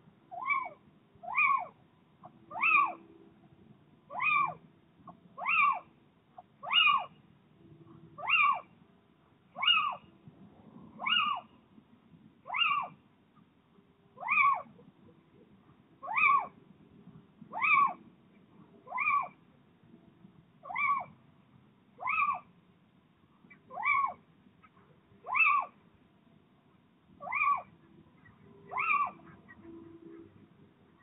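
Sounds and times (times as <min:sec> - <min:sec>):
owl calling: 0:00.3 - 0:03.0, 0:04.1 - 0:07.2, 0:08.2 - 0:08.7, 0:09.6 - 0:10.1, 0:11.0 - 0:11.6, 0:12.4 - 0:13.0, 0:14.2 - 0:15.2, 0:16.0 - 0:16.6, 0:17.5 - 0:18.0, 0:18.8 - 0:19.4, 0:20.6 - 0:21.2, 0:22.0 - 0:22.5, 0:23.5 - 0:25.8, 0:27.2 - 0:31.0.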